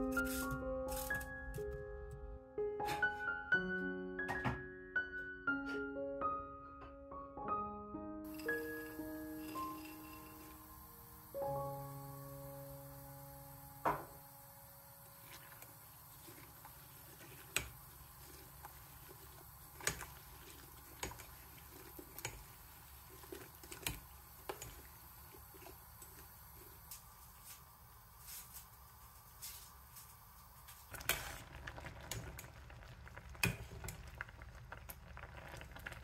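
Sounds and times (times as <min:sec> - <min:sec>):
wet stirring of fruit: 0:15.1 - 0:26.3.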